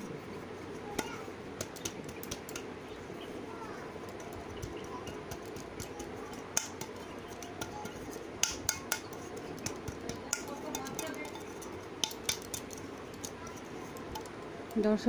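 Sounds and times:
steady background noise: 0.0 - 15.0
metal bowl taps and clinks: 4.1 - 14.4.

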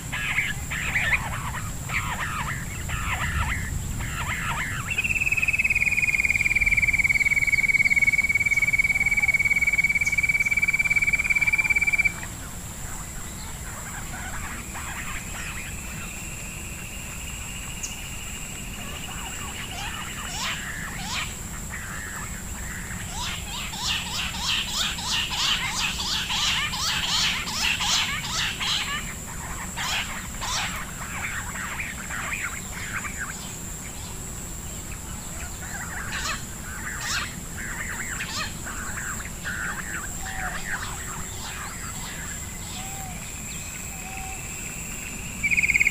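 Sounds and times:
quail calling: 0.0 - 12.4, 18.8 - 33.5, 35.3 - 43.3, 45.4 - 45.9
steady high-pitched whine: 0.0 - 45.9.

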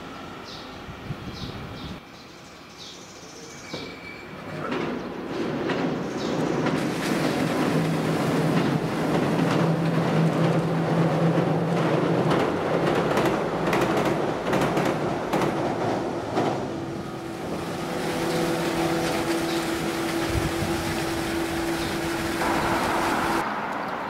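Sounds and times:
train hum: 0.0 - 2.7, 4.4 - 24.0
high steady train tone: 0.0 - 24.0
train wheels clacking over joints: 4.5 - 17.0.

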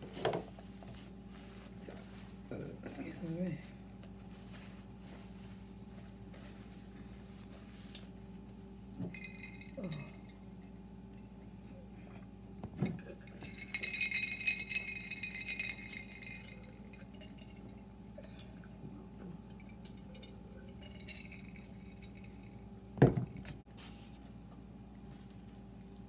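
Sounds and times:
glass jars clinking: 9.0 - 10.5, 12.7 - 17.8, 19.5 - 22.6.

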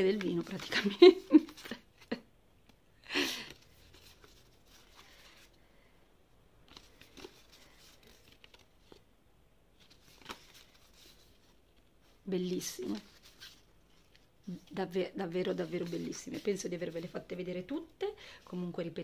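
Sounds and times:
paper cards being shuffled: 0.0 - 2.2, 6.6 - 9.0, 9.8 - 11.8, 12.5 - 17.7.

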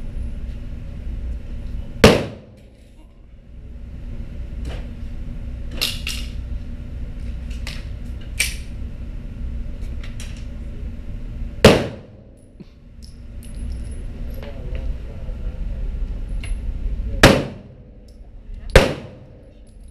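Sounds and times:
steady low hum: 0.0 - 19.9
pistol shot ringing indoors: 2.0 - 2.8, 11.7 - 12.5, 17.2 - 17.9, 18.7 - 19.5.

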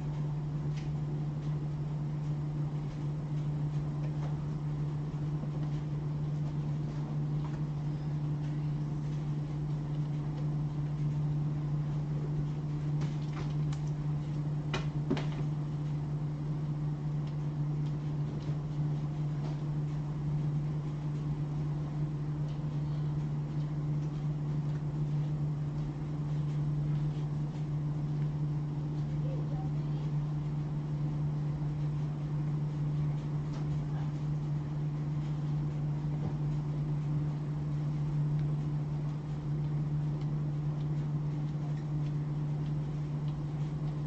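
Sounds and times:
low mechanical hum: 0.0 - 44.0.

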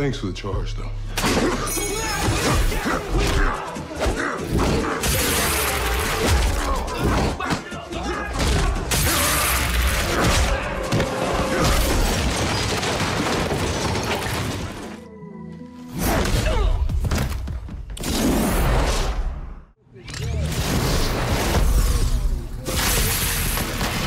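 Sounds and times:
action music score: 0.0 - 19.4
crashing and shattering: 8.4 - 15.0.

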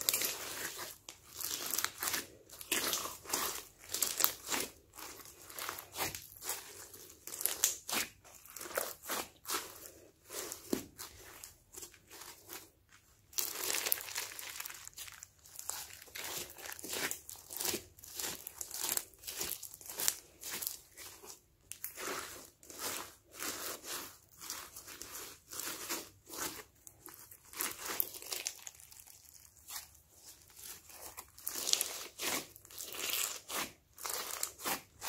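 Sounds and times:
slime with foam beads crackling: 0.0 - 35.0.

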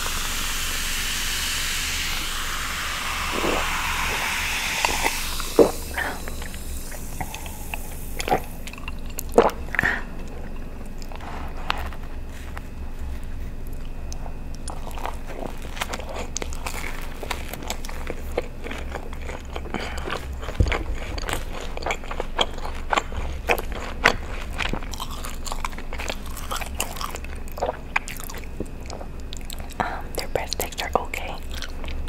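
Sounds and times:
chewing with wet mouth clicks: 3.6 - 12.7, 13.6 - 32.0.

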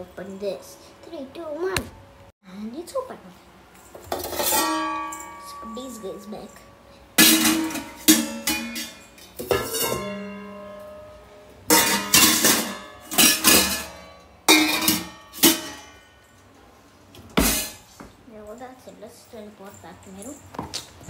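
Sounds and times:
steel bowls clanking and ringing: 3.8 - 16.5.

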